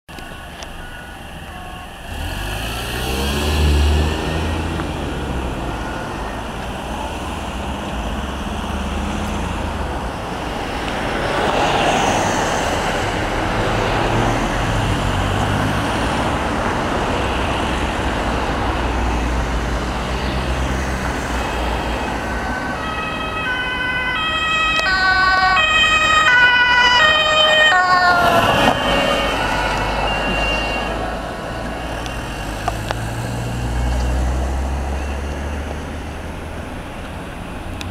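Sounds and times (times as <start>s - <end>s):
road traffic passing: 0.1s - 37.9s
ambulance two-tone siren: 0.2s - 2.1s, 5.4s - 7.1s, 21.4s - 32.6s.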